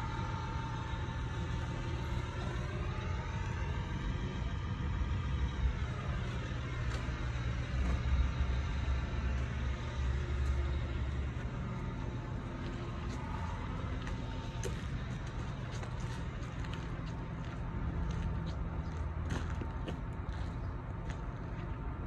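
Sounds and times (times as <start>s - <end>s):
low engine rumble: 0.0s - 22.0s.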